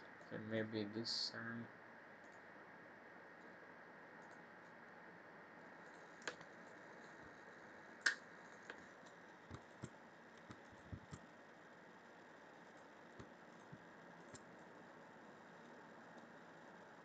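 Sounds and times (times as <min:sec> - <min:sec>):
low hiss: 0:00.0 - 0:17.0.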